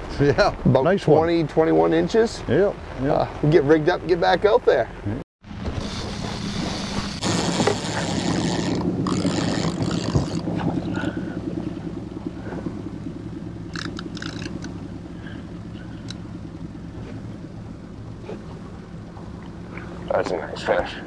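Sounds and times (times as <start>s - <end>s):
outboard motor droning: 0.2s - 21.0s
faint clicks: 15.9s - 16.2s.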